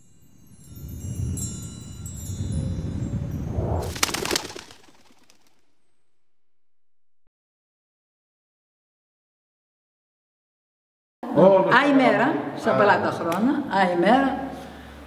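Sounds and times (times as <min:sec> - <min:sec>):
high tinkling chimes: 0:00.0 - 0:04.0
low rumbling swell: 0:00.0 - 0:07.1
sharp rustling strokes: 0:03.8 - 0:05.7.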